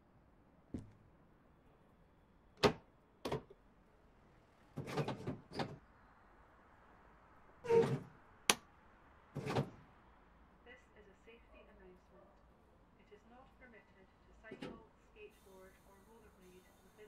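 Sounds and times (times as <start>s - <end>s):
short knocks and clunks: 0.7s - 1.1s, 2.6s - 3.6s, 4.7s - 5.8s.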